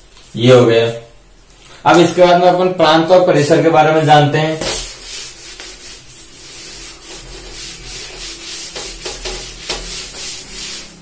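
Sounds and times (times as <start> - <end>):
eraser rubbing on whiteboard: 3.9 - 11.0.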